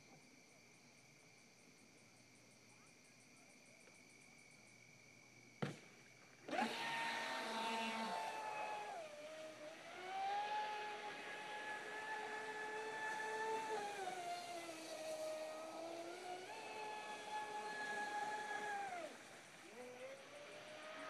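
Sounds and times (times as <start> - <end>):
rc boat electric motor whine: 6.4 - 21.0
insects trilling: 7.4 - 21.0.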